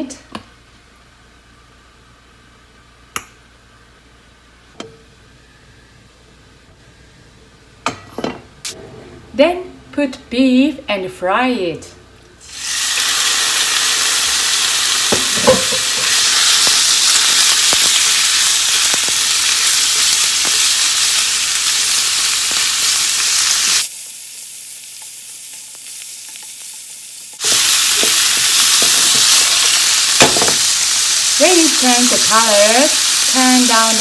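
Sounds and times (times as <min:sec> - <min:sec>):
meat sizzling in oil: 0:12.4 - 0:34.0.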